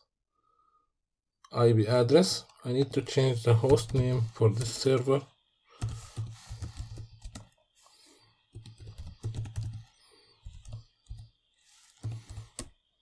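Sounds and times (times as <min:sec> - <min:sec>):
typing on computer keyboard: 0:03.6 - 0:04.8, 0:05.8 - 0:07.5, 0:08.5 - 0:11.3, 0:12.0 - 0:12.7.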